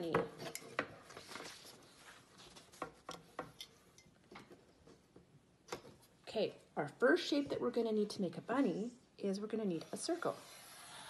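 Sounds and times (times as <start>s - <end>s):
paper rustling on clipboard: 1.1s - 3.0s.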